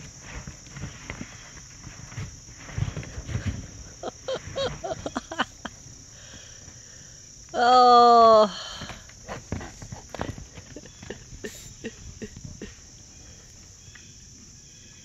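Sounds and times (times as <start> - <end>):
dull thuds of foal rolling: 0.0 - 5.8, 8.8 - 13.6
high insect chorus: 0.0 - 15.0.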